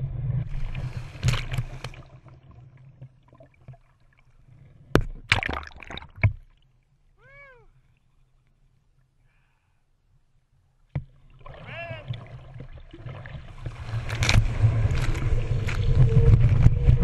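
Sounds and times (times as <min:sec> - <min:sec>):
water splashing and rushing: 0:00.4 - 0:06.5, 0:11.1 - 0:17.0.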